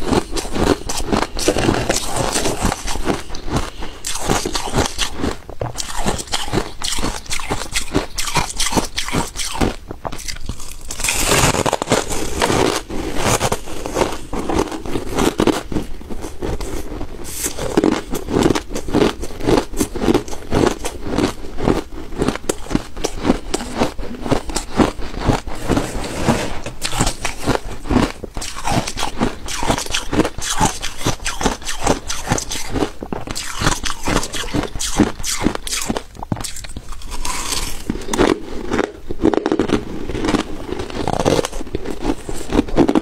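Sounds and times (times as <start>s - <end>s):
ice chunks crunching: 4.1s - 16.6s, 22.2s - 43.0s.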